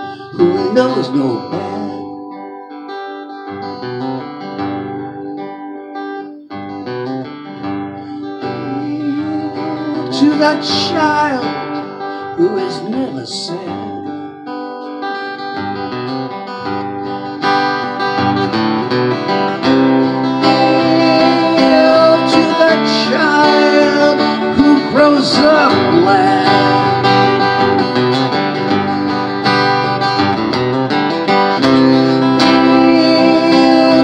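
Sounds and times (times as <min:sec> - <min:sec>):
person singing: 0:00.0 - 0:02.5, 0:08.0 - 0:14.4, 0:19.7 - 0:30.0, 0:31.6 - 0:34.0
acoustic guitar strumming: 0:00.0 - 0:34.0.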